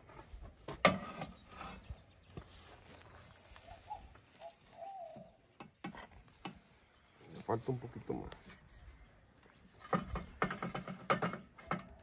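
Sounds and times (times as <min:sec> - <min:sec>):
faint wavering animal call: 0:03.6 - 0:05.4.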